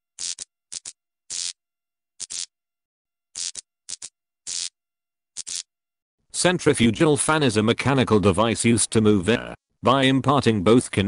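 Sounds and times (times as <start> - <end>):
neon sign buzzing and crackling: 0.2 - 1.6, 2.2 - 2.5, 3.4 - 4.7, 5.4 - 5.7.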